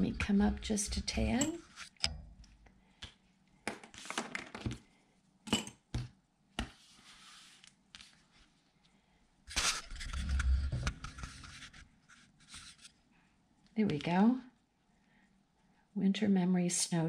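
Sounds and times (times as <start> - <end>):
paper sliding rustle: 6.8 - 8.5.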